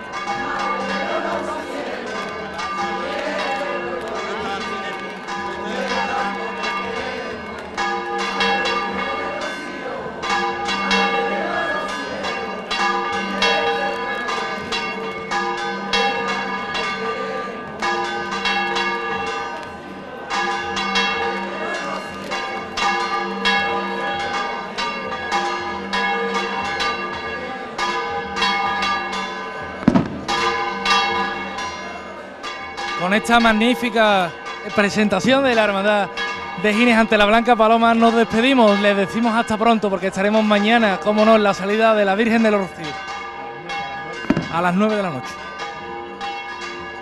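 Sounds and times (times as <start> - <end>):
church bells pealing: 0.0 - 47.0
sharp bang: 29.8 - 30.5.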